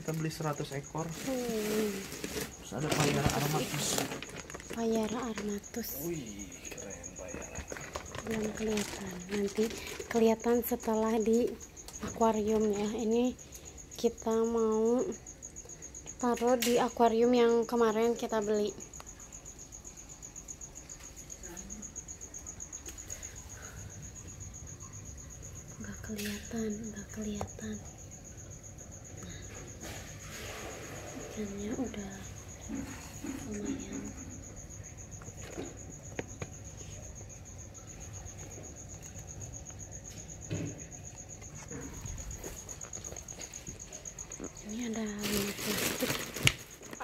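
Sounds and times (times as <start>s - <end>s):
plastic bags rustling: 0.0s - 6.1s, 7.3s - 10.2s, 44.8s - 47.0s
cricket chirping: 0.0s - 47.0s
thump: 40.5s - 40.8s.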